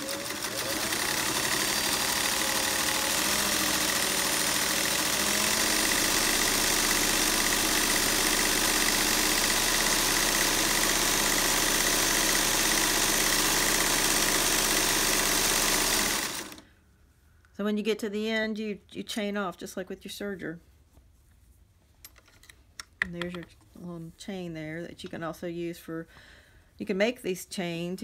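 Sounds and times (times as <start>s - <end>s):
sewing machine running: 0.0s - 16.6s.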